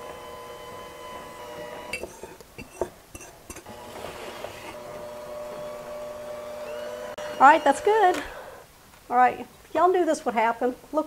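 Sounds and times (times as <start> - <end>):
electric hand mixer humming: 0.0 - 2.9, 3.5 - 8.7.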